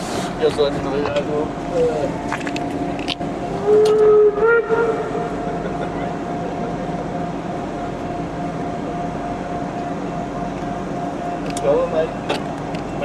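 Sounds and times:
steady hum: 0:00.0 - 0:13.0
steam locomotive whistle: 0:03.5 - 0:05.6.

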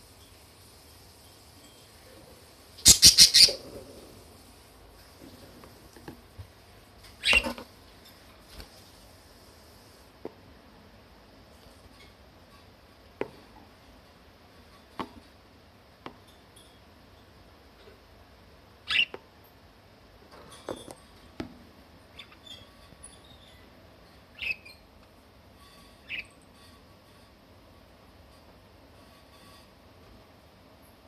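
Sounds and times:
budgerigar chirping: 0:02.8 - 0:03.6, 0:18.9 - 0:19.1, 0:24.3 - 0:24.8, 0:26.0 - 0:26.3.

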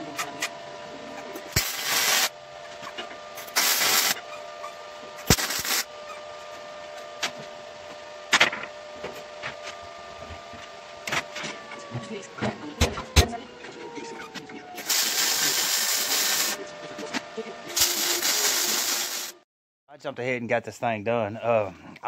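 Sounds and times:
steady hum: 0:00.0 - 0:19.4
welder crackling bursts: 0:01.5 - 0:02.4, 0:03.4 - 0:04.2, 0:05.2 - 0:05.9, 0:14.8 - 0:16.6, 0:17.8 - 0:19.4.

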